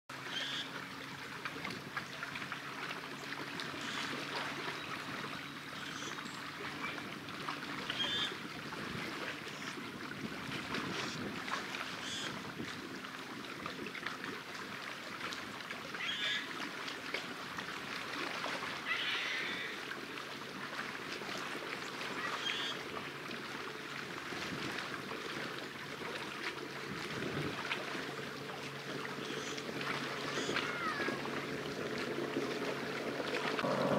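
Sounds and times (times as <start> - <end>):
waves lapping on rocks: 15.8 - 33.9.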